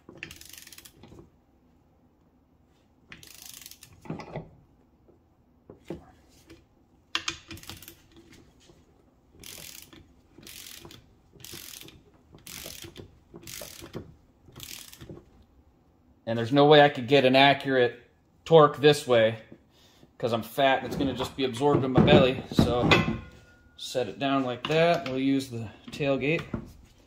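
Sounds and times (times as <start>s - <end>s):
ratchet wrench clicking: 0.2s - 1.1s, 3.1s - 4.0s, 7.2s - 8.0s, 9.4s - 15.2s.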